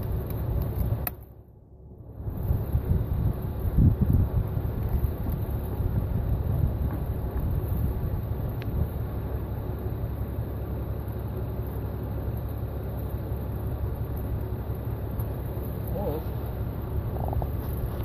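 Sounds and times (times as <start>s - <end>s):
wind buffeting microphone: 2.3s - 9.0s.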